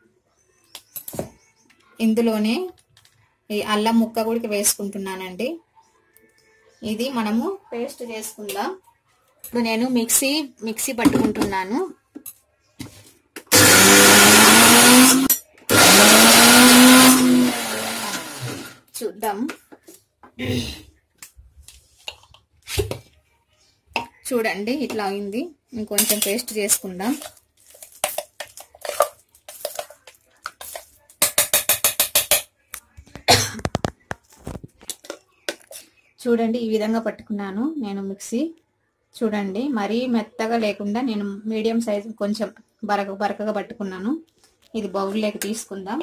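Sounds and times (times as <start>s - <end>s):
mixer grinder running: 13.5s - 18.8s.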